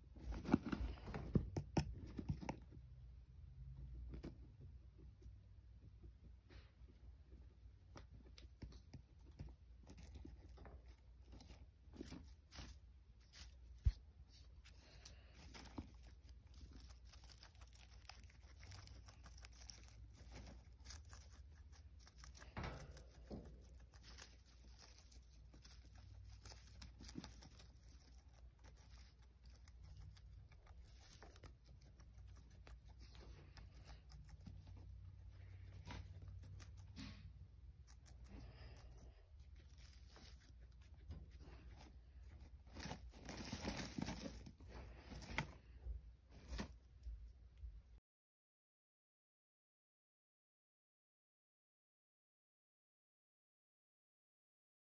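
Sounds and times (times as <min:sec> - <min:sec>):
guinea pig chewing lettuce: 0:07.5 - 0:45.8.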